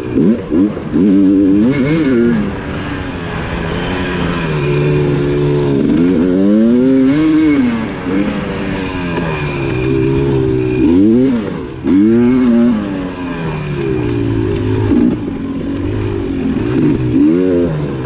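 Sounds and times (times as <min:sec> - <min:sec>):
dirt bike engine revving: 0:00.0 - 0:18.0.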